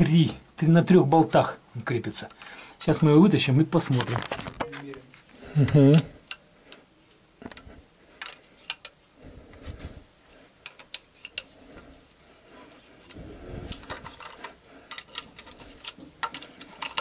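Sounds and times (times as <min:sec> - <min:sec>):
muffled handling noise: 0:03.8 - 0:17.0.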